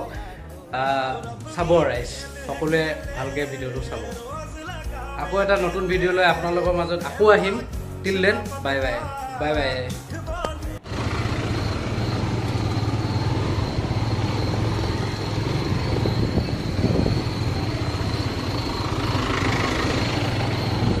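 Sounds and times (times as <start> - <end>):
vehicle engine hum: 10.4 - 21.0
road noise: 10.8 - 21.0
faint high whine: 10.9 - 21.0.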